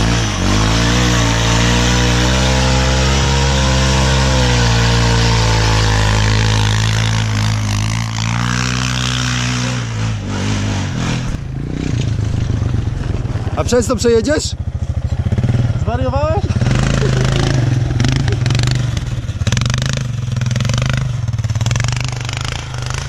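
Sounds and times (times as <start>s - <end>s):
tyres ploughing through snow: 0.0s - 14.0s
atv engine at high revs: 0.0s - 23.0s.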